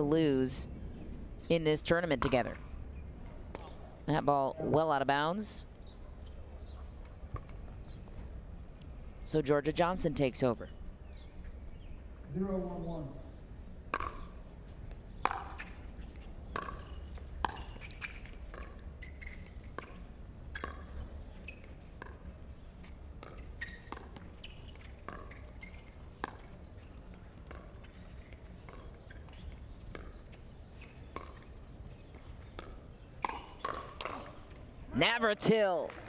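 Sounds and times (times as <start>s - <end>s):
ball bouncing on court: 2.1s - 2.6s, 7.3s - 7.6s, 13.9s - 14.3s, 15.2s - 15.8s, 16.4s - 26.6s, 27.4s - 30.2s, 31.1s - 34.6s
paddles hitting plastic ball: 32.6s - 34.4s.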